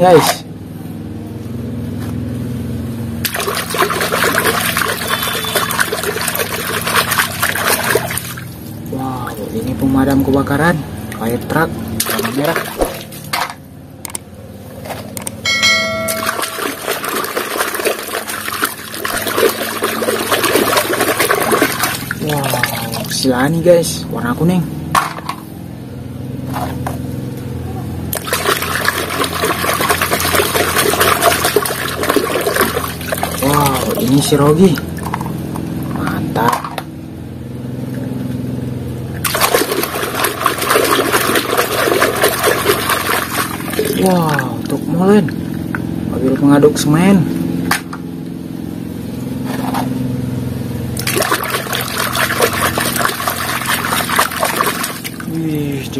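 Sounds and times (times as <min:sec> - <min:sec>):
water sloshing and splashing: 0:03.2 - 0:13.7, 0:15.8 - 0:23.4, 0:28.0 - 0:37.0, 0:37.7 - 0:46.4, 0:50.9 - 0:55.9
short ringing bell chime: 0:15.4 - 0:16.8
hand scrubbing plastic toy: 0:51.1 - 0:55.1.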